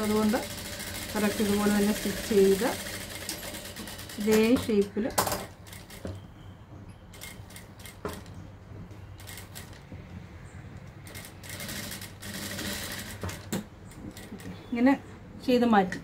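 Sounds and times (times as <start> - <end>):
sewing machine motor hum: 0.0 - 4.8, 11.0 - 13.5.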